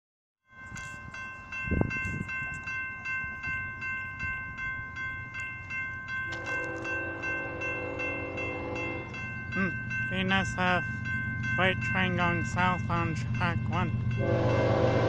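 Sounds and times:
railroad crossing bell ringing: 0.4s - 15.0s
train horn: 6.4s - 9.1s, 14.2s - 15.0s.

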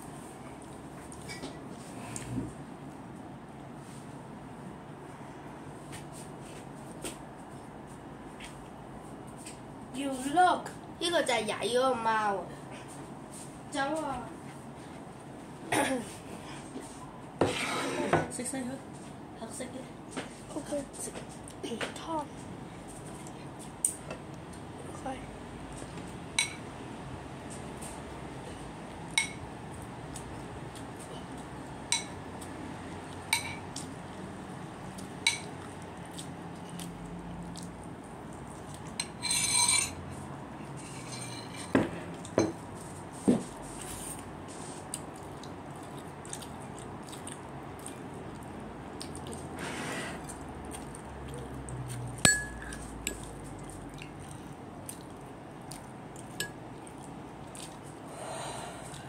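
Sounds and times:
tableware clinking on ceramic bowl: 39.0s - 40.0s, 40.9s - 42.6s, 52.2s - 53.2s.

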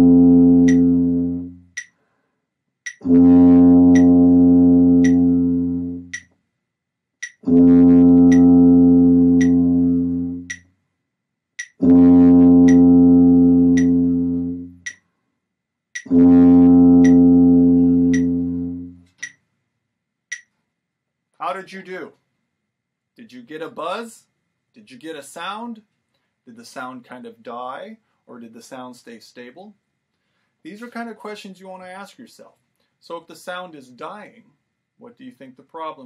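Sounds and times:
tuba long notes: 0.0s - 1.7s, 3.0s - 6.2s, 7.4s - 10.6s, 11.8s - 14.9s, 16.1s - 19.1s
metronome clicking: 0.6s - 0.9s, 1.7s - 2.0s, 2.8s - 3.1s, 3.9s - 4.2s, 5.0s - 5.3s, 6.0s - 6.4s, 7.2s - 7.5s, 8.2s - 8.5s, 9.4s - 9.6s, 10.4s - 10.7s, 11.6s - 11.8s, 12.6s - 12.9s, 13.7s - 14.0s, 14.8s - 15.1s, 16.0s - 16.2s, 17.0s - 17.3s, 18.0s - 18.5s, 19.1s - 19.4s, 20.3s - 20.6s.

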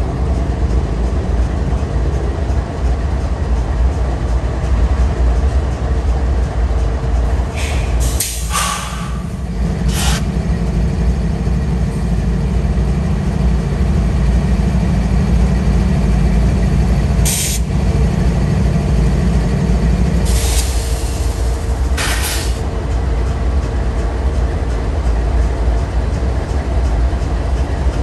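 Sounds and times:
diesel locomotive engine rumble: 0.0s - 28.0s
air release hisses: 7.6s - 9.3s, 9.9s - 10.2s, 20.3s - 22.6s.

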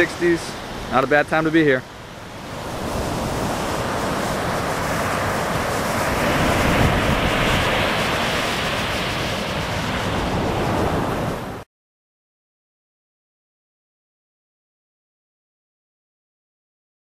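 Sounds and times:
ocean waves breaking on beach: 0.0s - 11.6s
wind buffeting microphone: 2.0s - 11.6s.

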